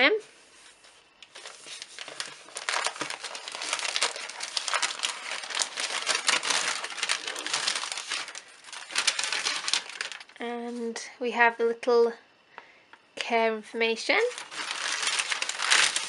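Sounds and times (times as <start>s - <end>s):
wrapping paper crinkling: 1.2s - 10.8s, 14.1s - 16.0s.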